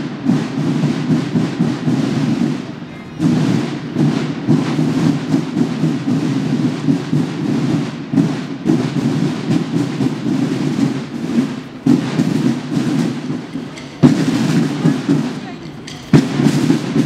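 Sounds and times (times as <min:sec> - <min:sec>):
marching drums beating: 0:00.0 - 0:17.0.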